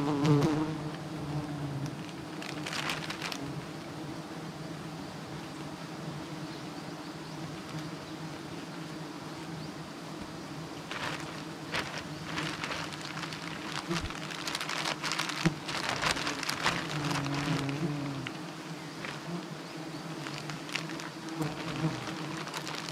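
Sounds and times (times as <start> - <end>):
bees buzzing: 0.0 - 6.5, 7.4 - 22.9
plastic bag crackling: 1.8 - 3.6, 10.9 - 19.5, 20.1 - 22.9.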